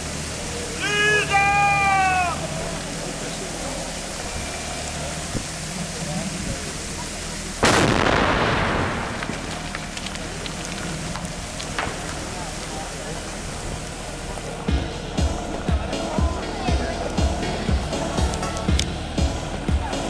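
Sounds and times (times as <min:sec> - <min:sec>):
loud rushing noise: 0:00.0 - 0:20.0
mini-loader engine running: 0:00.0 - 0:20.0.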